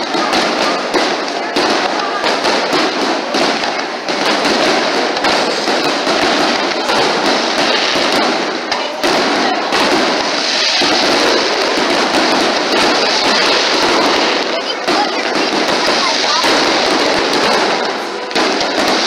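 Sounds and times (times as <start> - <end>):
fireworks bursting: 0.0 - 19.0.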